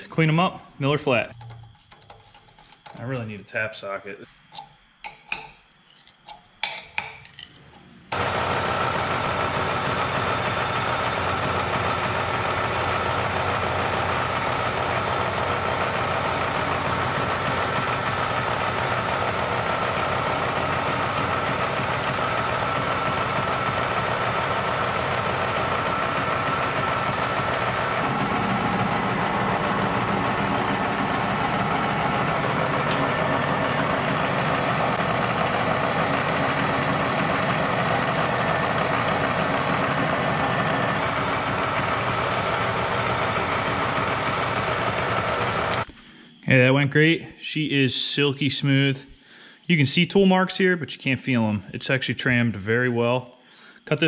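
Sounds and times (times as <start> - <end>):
milling machine cutting metal: 8.1 - 45.8.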